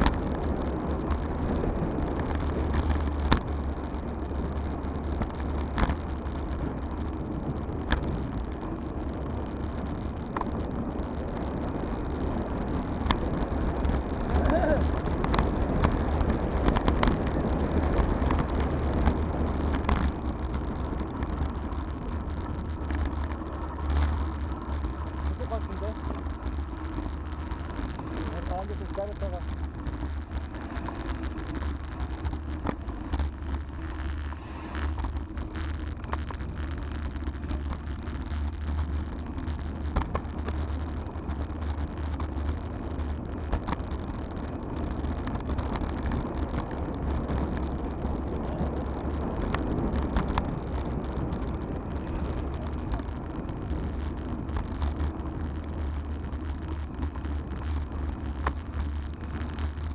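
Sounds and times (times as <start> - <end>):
wind rumbling on microphone: 0.0 - 59.9
tyres hissing on asphalt: 12.0 - 59.9
bike knocking over bumps: 14.3 - 59.9.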